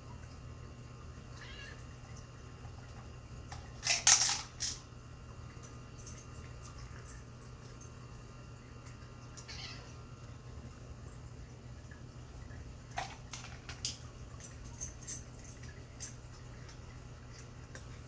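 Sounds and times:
low steady hum: 0.0s - 18.0s
dry cat food rattling: 3.5s - 4.8s, 13.0s - 16.2s.

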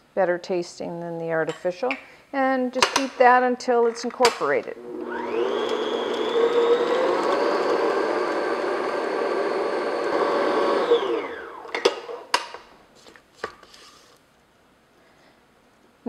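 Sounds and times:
stand mixer motor running: 4.8s - 11.7s.

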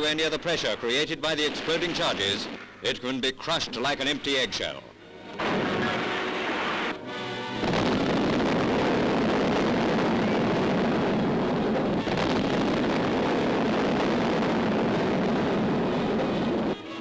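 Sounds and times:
held musical chord: 5.0s - 7.8s
depth charge explosions: 5.3s - 7.0s, 7.6s - 16.8s.

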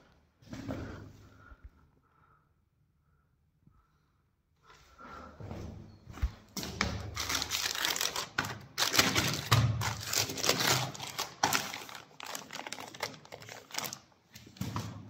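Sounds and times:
plastic bag crinkling: 6.9s - 14.4s.

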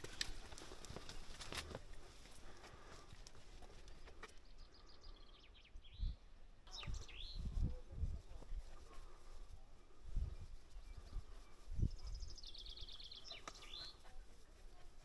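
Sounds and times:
birds chirping: 0.0s - 15.0s
whistled bird notes: 4.7s - 7.7s.

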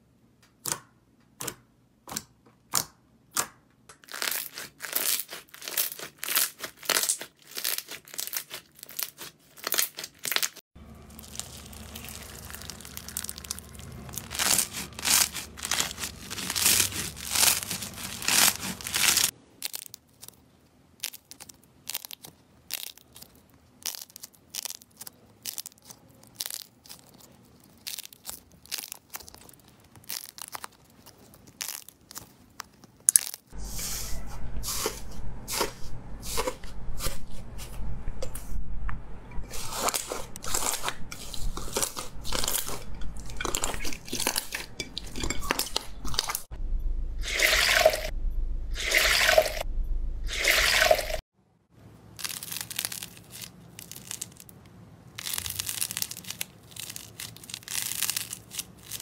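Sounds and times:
hands squeezing sticky slime: 4.0s - 20.4s, 21.0s - 33.5s, 52.2s - 54.5s, 55.2s - 59.0s
low steady hum: 10.8s - 19.6s, 33.5s - 52.2s.

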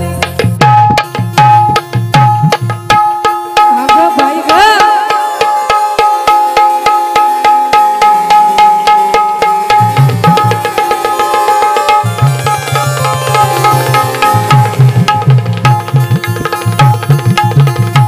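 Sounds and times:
hand drums fast rhythm: 0.0s - 18.0s
electronic keyboard melody: 5.1s - 18.0s.

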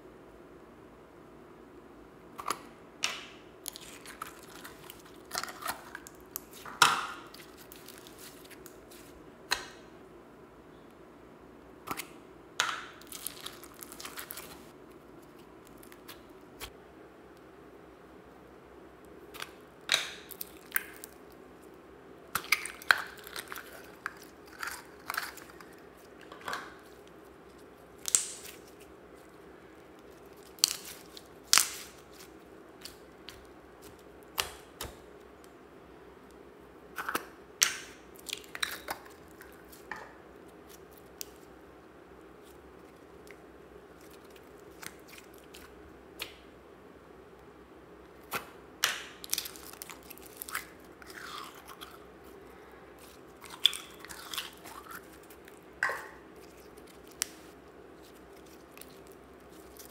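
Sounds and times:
slime squelching and popping: 19.3s - 21.4s, 22.3s - 28.9s, 29.9s - 35.1s, 53.0s - 59.9s.

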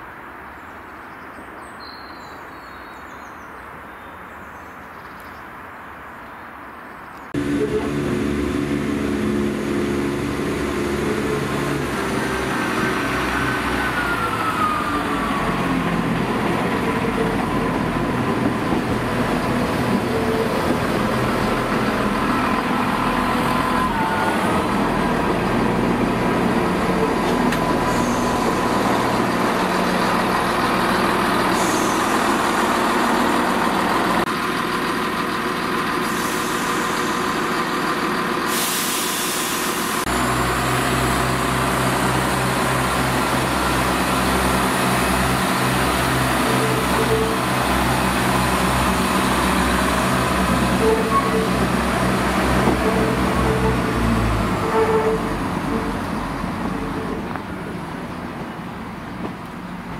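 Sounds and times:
deep low hum: 7.4s - 12.0s
train diesel engines running: 7.4s - 59.9s.

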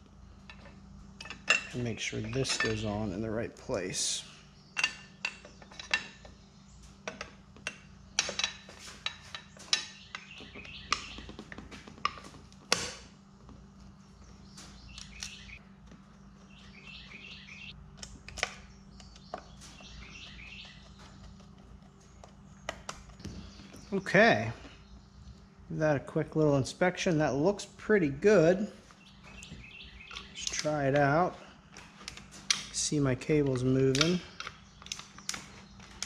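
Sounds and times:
birds chirping: 0.0s - 36.0s.

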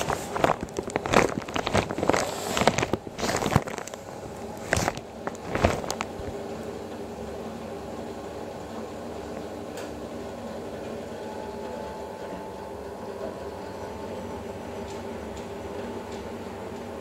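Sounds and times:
washing machine motor hum: 0.0s - 17.0s.

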